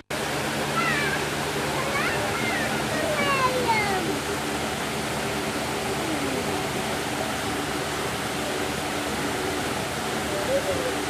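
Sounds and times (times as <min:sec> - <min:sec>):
waterfall splashing over rocks: 0:00.0 - 0:11.0.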